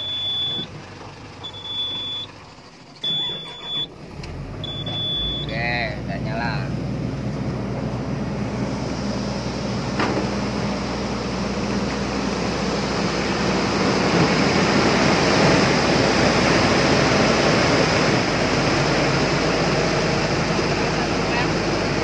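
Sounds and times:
diesel engine running: 0.0s - 22.0s
cooling fan rushing: 5.5s - 22.0s.

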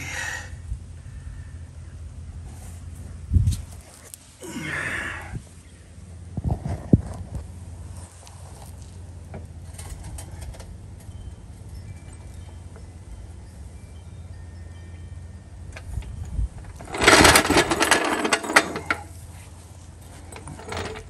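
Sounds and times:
low steady hum: 0.0s - 21.0s
handling rustle: 2.5s - 4.4s, 6.5s - 11.2s.

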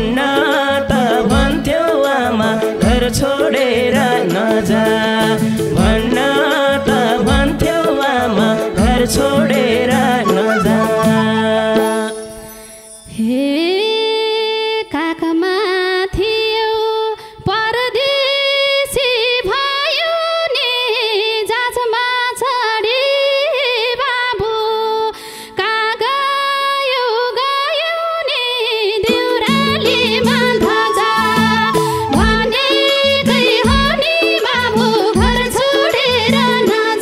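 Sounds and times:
woman singing folk song: 13.1s - 37.0s.

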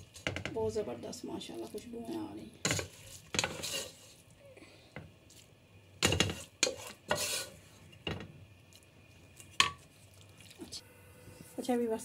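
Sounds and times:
wooden spatula scraping a pan: 0.0s - 4.3s, 6.0s - 8.0s.

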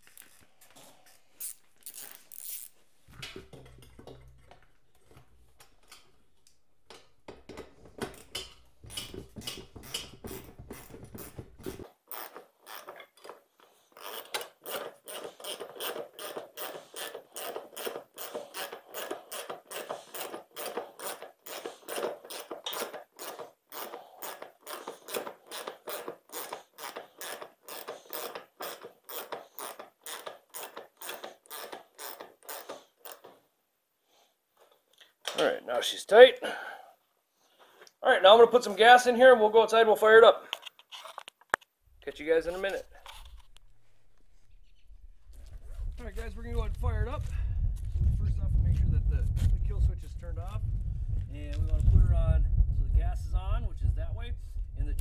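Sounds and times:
ratchet wrench clicking: 1.4s - 2.8s, 14.0s - 33.3s
low hum: 41.9s - 55.0s.

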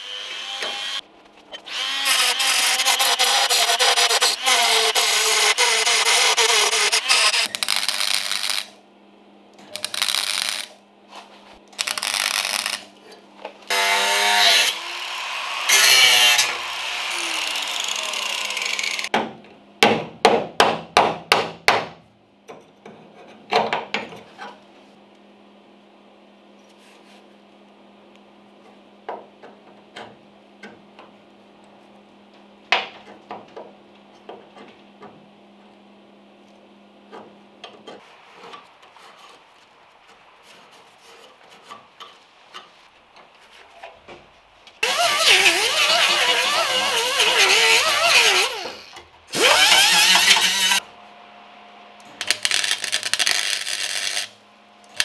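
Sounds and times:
welder tack-welding sheet steel: 6.5s - 8.8s, 9.7s - 10.8s, 11.7s - 12.9s, 52.2s - 55.0s
power tool whining: 44.8s - 50.8s.

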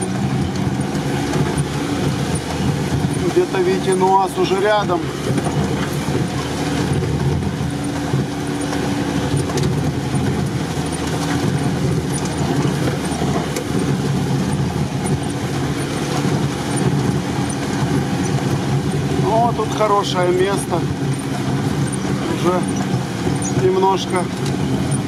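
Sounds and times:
off-road vehicle engine running: 0.0s - 25.0s.

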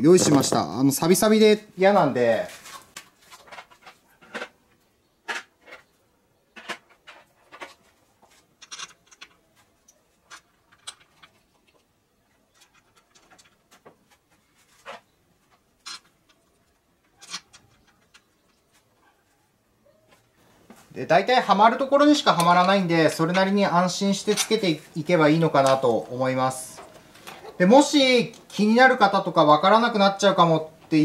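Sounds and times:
metallic clicks of bolts: 8.6s - 9.4s.

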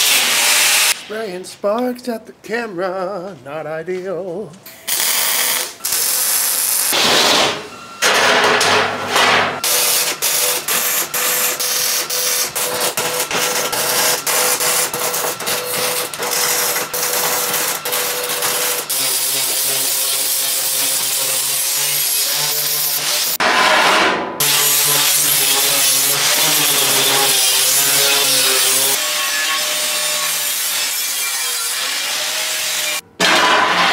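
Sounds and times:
welding arc crackling: 4.9s - 7.4s, 9.6s - 23.4s, 24.4s - 33.0s
angle grinder on steel: 9.6s - 23.4s, 24.4s - 33.9s.

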